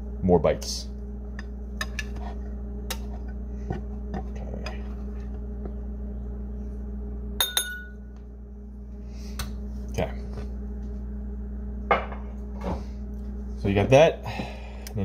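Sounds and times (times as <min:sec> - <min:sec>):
low steady hum: 0:00.0 - 0:15.0
sharp ringing clink: 0:07.4 - 0:08.0.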